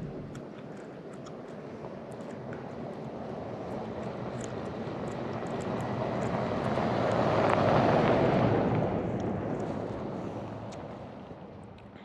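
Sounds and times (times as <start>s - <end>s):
truck driving past on snow: 4.6s - 11.2s.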